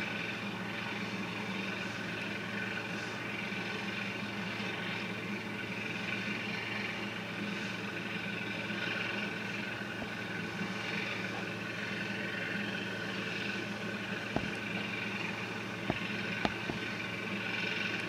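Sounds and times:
boat engine drone: 0.0 - 18.0
bow wave washing: 9.2 - 18.0.

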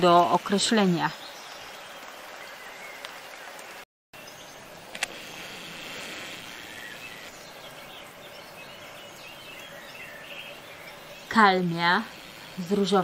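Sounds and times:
garden background hiss: 0.0 - 13.0
faint bird chirps: 4.2 - 13.0
sharp click: 4.9 - 5.2.

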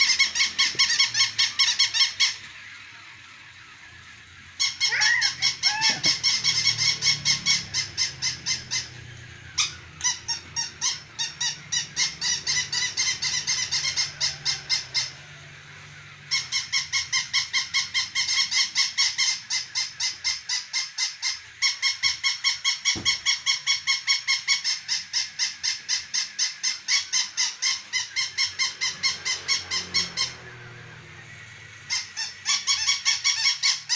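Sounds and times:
toy dog electronic squeaky barks: 0.0 - 3.7, 4.4 - 15.3, 16.3 - 30.4, 31.8 - 33.9.

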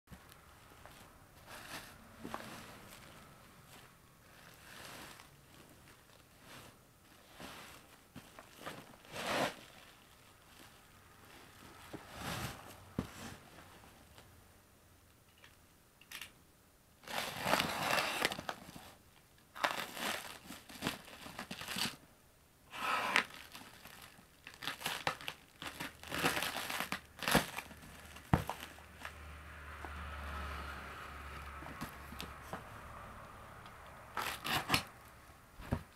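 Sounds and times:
plastic wrap crinkling and tearing: 7.7 - 10.9, 17.0 - 18.8, 19.5 - 22.0, 23.2 - 29.1, 34.1 - 35.2.

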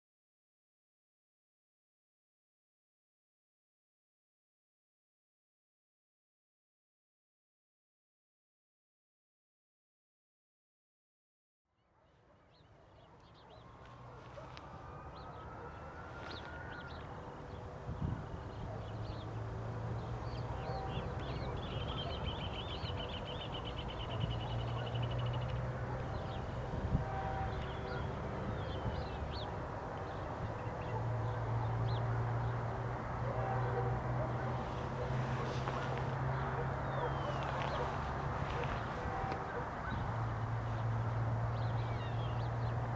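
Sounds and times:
birds chirping and trilling: 12.0 - 42.9
diesel locomotive engine drone: 13.5 - 42.9.

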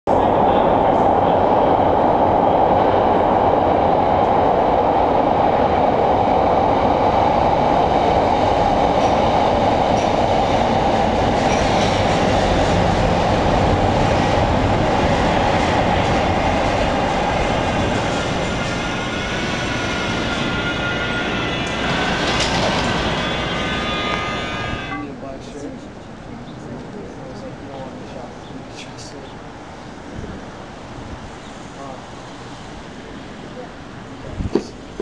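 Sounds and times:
subway train wheels rumbling: 0.1 - 35.0.

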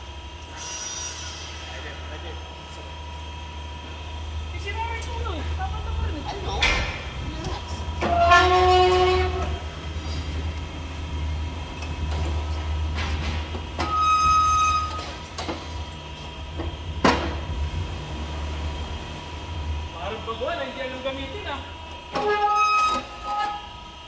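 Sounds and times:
steady low hum: 0.0 - 13.8.

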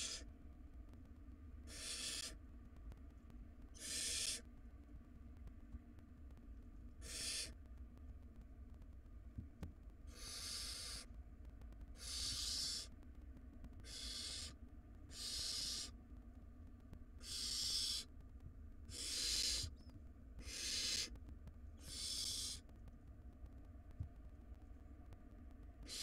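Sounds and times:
owl nestlings hissing calls: 0.0 - 0.3, 1.7 - 2.4, 3.8 - 4.4, 7.0 - 7.6, 10.1 - 11.1, 12.0 - 12.9, 13.8 - 16.0, 17.2 - 18.1, 18.9 - 19.8, 20.4 - 21.1, 21.8 - 22.6.

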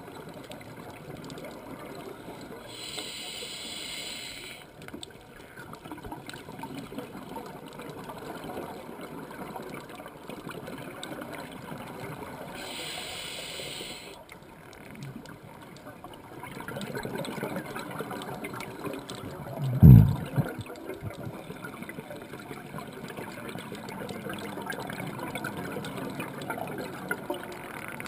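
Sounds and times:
exhaled air bubbling underwater: 0.0 - 28.0
scuba regulator hissing inhale: 2.7 - 4.7, 12.6 - 14.2.

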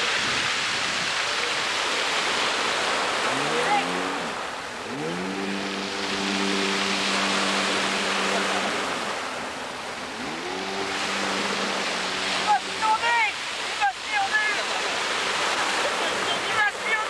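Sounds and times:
jet ski engine revving: 0.0 - 17.0
waves breaking: 0.0 - 17.0.

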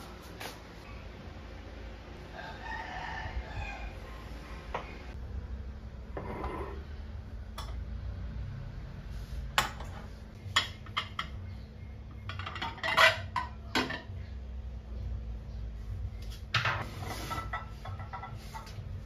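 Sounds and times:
steady low hum: 0.0 - 12.6, 13.4 - 19.0
ceramic dishes clinking and clattering: 9.6 - 11.4, 12.2 - 14.2, 16.6 - 18.8.

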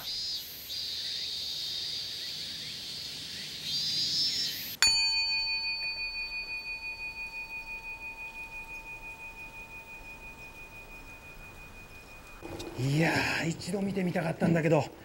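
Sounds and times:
bowl bell ringing: 4.8 - 12.4.

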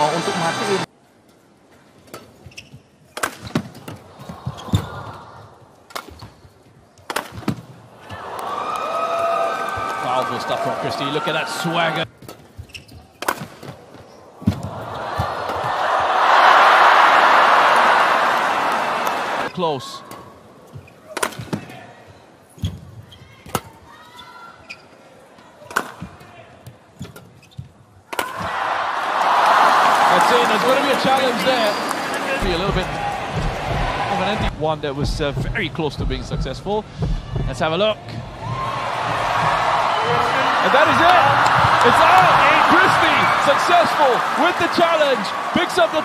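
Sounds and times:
court shoes squeaking: 2.0 - 5.2, 5.9 - 8.2, 12.0 - 15.8, 19.5 - 25.1, 25.7 - 28.5, 31.1 - 33.4
footsteps on court: 32.4 - 44.4.

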